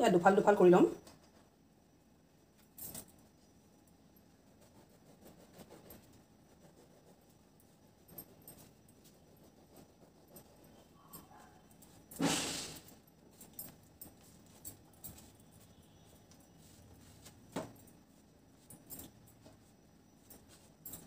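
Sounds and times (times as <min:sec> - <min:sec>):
bread rustling: 0:12.9 - 0:21.0.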